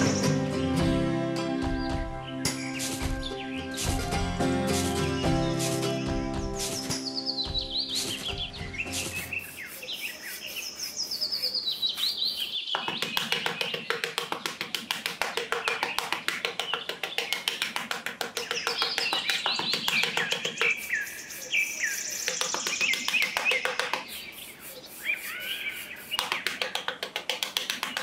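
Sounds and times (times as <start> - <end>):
birds chirping and singing: 0.0 - 28.0
trowel scraping sand: 2.5 - 12.5, 17.9 - 28.0.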